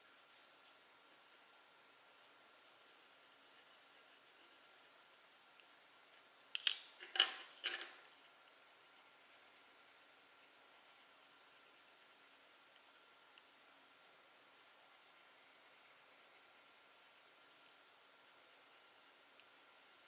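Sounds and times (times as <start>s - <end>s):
tool scratching on paper: 2.6s - 5.0s, 8.5s - 20.0s.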